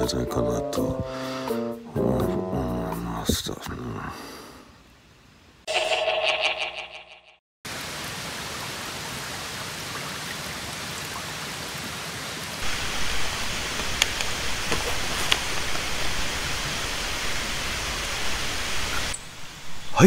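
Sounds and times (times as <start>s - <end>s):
stream babbling over stones: 7.7s - 19.1s.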